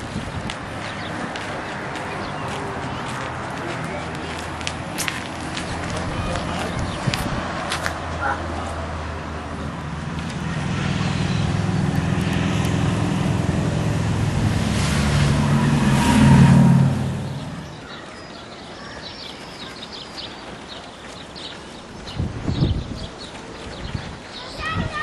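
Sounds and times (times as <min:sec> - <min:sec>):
engine passing by: 0:00.0 - 0:18.1.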